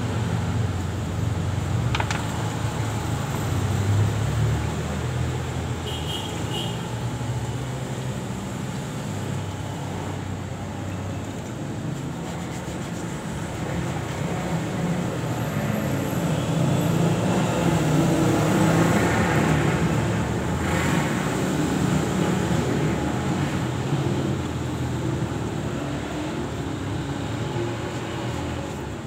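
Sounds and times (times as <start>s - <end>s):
vehicle engine rumbling: 0.0s - 5.7s.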